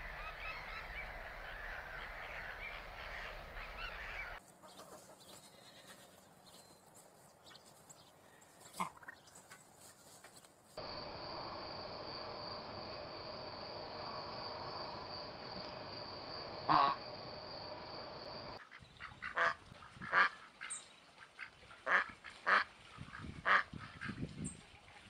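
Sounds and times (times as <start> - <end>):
ducks quacking: 0.0 - 5.2, 16.6 - 17.0, 18.6 - 24.2.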